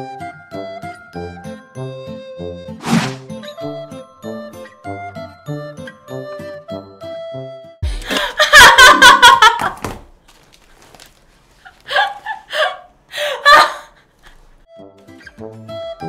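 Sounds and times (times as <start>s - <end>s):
woman laughing loudly: 8.0s - 9.9s, 11.9s - 14.0s.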